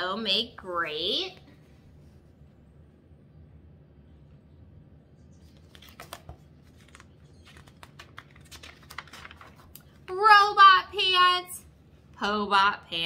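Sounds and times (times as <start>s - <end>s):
paper pages rustling: 5.4s - 10.1s.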